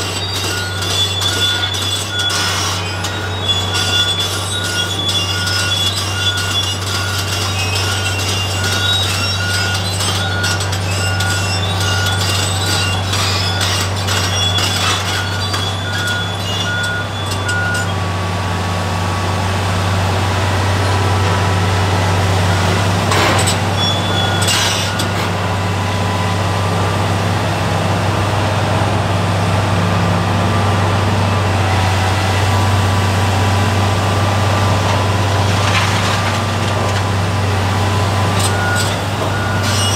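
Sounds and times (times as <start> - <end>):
excavator diesel engine droning: 0.0 - 39.9
debris clinking and scraping: 23.1 - 25.3, 34.8 - 37.3
debris clattering: 34.8 - 37.3.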